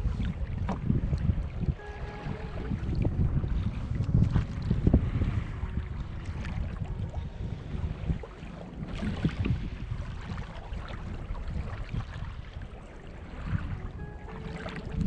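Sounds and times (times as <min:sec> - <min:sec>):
waves lapping against kayak hull: 0:00.0 - 0:15.0
wind buffeting microphone: 0:00.0 - 0:15.0.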